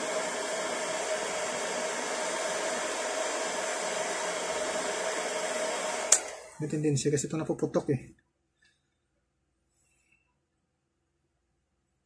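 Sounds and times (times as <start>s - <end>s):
heat gun blowing air: 0.0s - 6.7s
fan motor whine: 0.0s - 6.8s.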